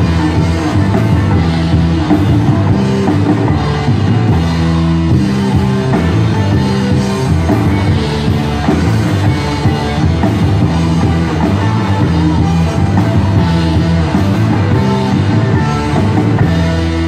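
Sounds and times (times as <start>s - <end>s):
drum kit: 0.0s - 17.0s
electric guitars: 0.0s - 17.0s.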